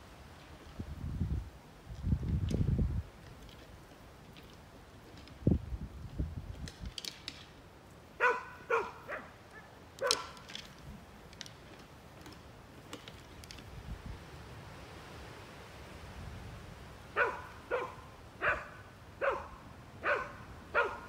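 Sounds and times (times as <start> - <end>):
small dog barking: 8.2 - 10.4, 17.2 - 21.0.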